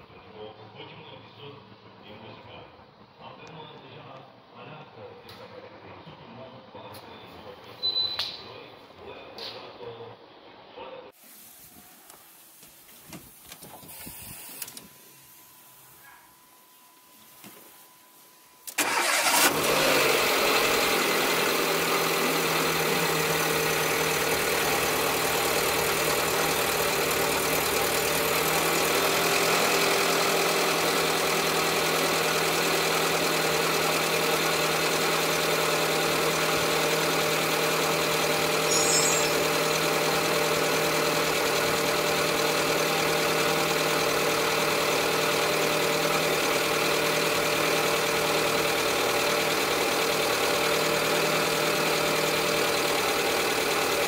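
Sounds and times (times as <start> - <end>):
car engine starting and idling: 18.6 - 54.0.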